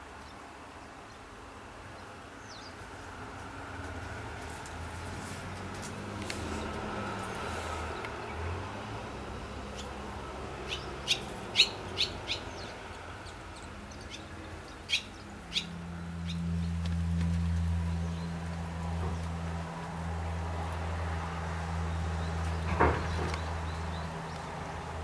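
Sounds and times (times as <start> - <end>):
swallows chirping: 9.7 - 10.0, 10.6 - 16.8.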